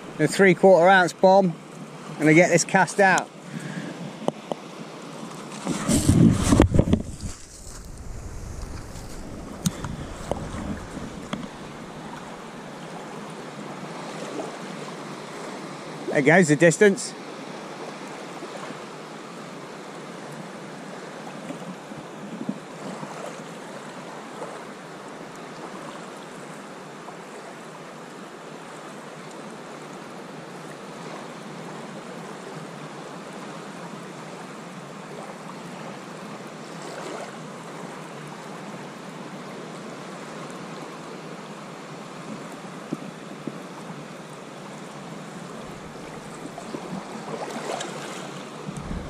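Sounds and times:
sea waves washing onto beach: 1.1 - 16.3, 41.8 - 49.0.

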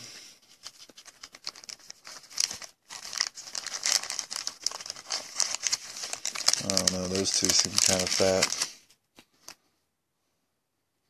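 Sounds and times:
foil wrappers crinkling: 0.4 - 8.8.

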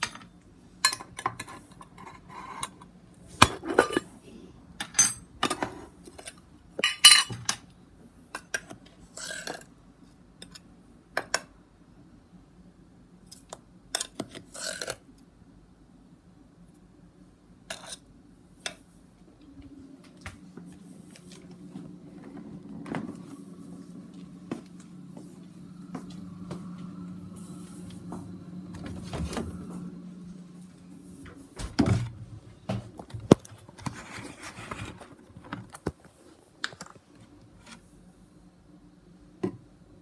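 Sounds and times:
refrigerator humming: 18.0 - 40.0.

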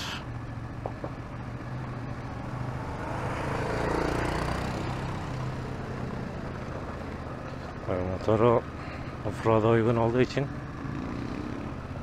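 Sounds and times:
motorcycle passing: 0.0 - 12.0.

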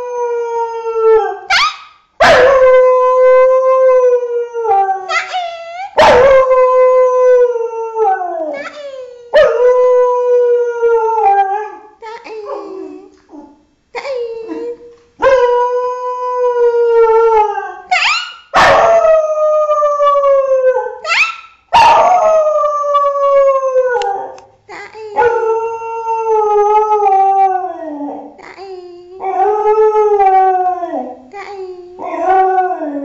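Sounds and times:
dog yipping: 1.5 - 2.4, 17.9 - 18.9, 21.0 - 22.1.

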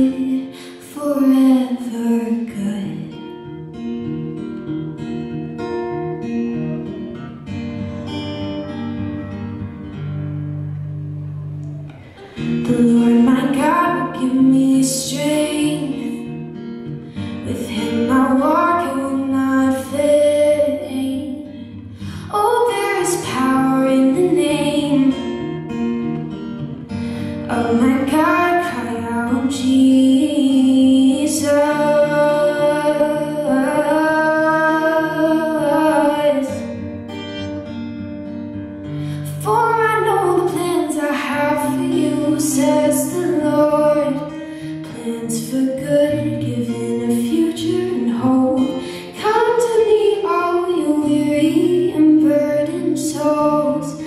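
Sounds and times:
woman singing: 0.0 - 3.8, 12.0 - 26.1, 27.2 - 36.9, 39.2 - 54.0
acoustic guitar: 0.0 - 54.0.

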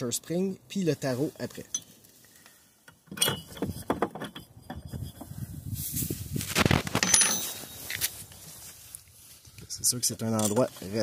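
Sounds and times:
rubbing and rustling: 3.4 - 9.6.

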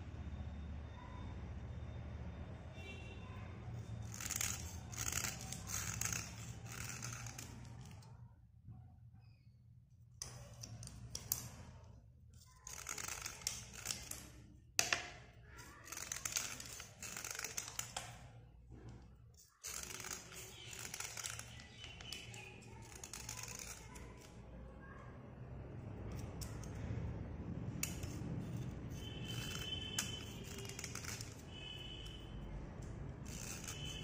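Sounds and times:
blade scraping slate pencil: 3.8 - 8.1, 12.4 - 18.2, 19.3 - 24.4, 26.0 - 26.8, 27.8 - 34.0.

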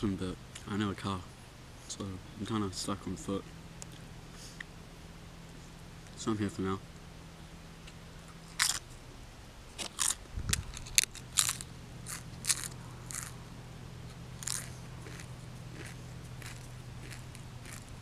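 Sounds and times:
chips crunching: 8.5 - 8.9, 9.8 - 13.4, 14.4 - 18.0.

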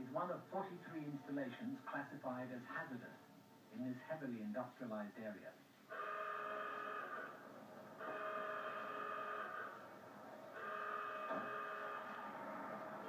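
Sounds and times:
fire station alarm blasts: 5.9 - 7.3, 8.0 - 9.8, 10.5 - 12.4.

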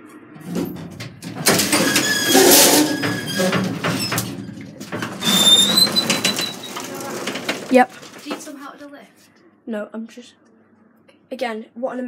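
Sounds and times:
metal lattice gate rattling: 0.4 - 8.6.

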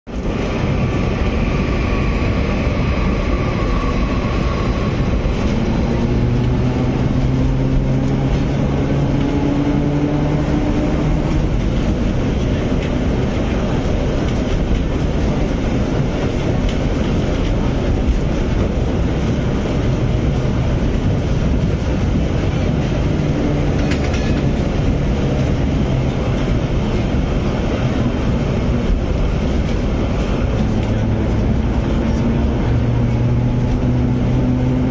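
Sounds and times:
tram motor hum: 0.1 - 34.9
tram wheels rumbling on rails: 0.1 - 34.9.

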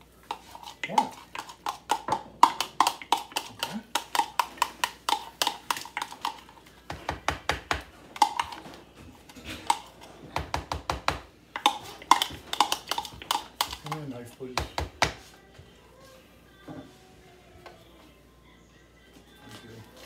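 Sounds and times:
spoon tapping and scraping bowl: 0.2 - 14.0.

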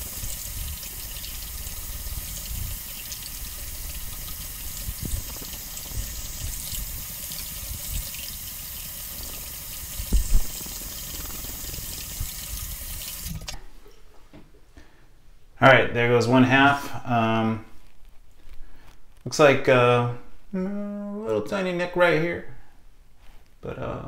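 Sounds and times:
faucet running into sink: 0.0 - 13.6
loud thump: 10.1 - 10.6.

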